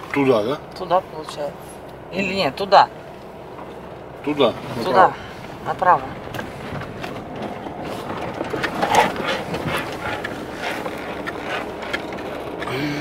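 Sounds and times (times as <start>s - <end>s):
road noise inside car: 0.0s - 13.0s
knocks and rattles: 5.4s - 12.7s.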